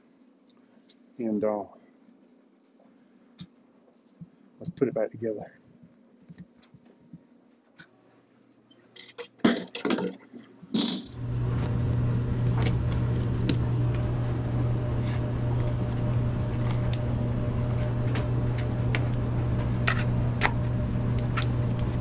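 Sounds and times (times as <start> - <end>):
air handler blower humming: 11.1 - 22.0.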